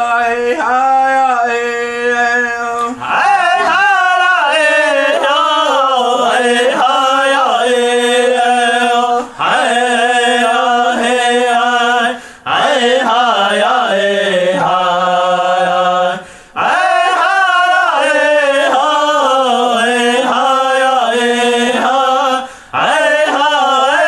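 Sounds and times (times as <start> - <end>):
person chanting unaccompanied: 0.0 - 24.0.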